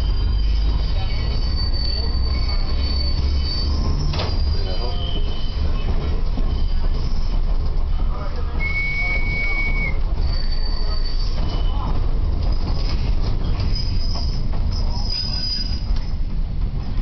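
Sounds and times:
high-pitched wheel squeals: 0:00.0 - 0:05.8, 0:08.6 - 0:11.9, 0:13.7 - 0:15.9
train car rolling rumble: 0:00.0 - 0:17.0.

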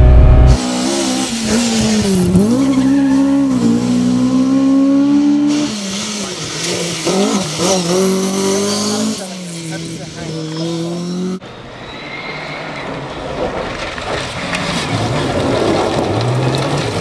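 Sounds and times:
rally car engine revving hard: 0:00.0 - 0:11.4.

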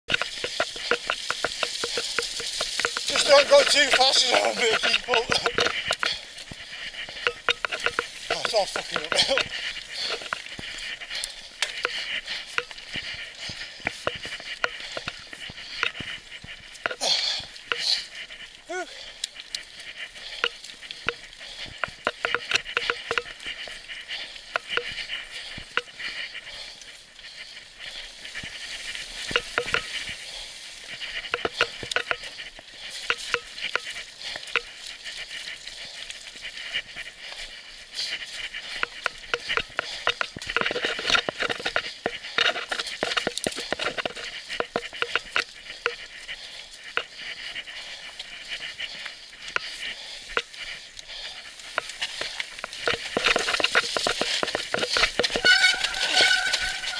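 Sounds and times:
bike rattling over roots: 0:00.1 - 0:56.9
bike tyres hissing on dirt: 0:45.5 - 0:56.9.

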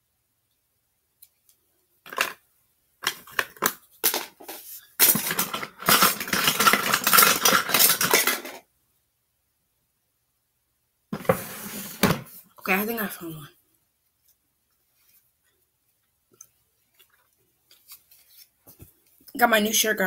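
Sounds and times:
metal cutlery clattering: 0:04.0 - 0:08.6.

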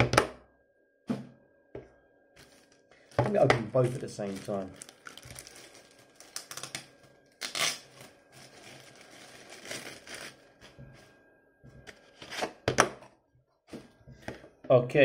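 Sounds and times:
plastic wrapping crinkling: 0:02.4 - 0:10.9.

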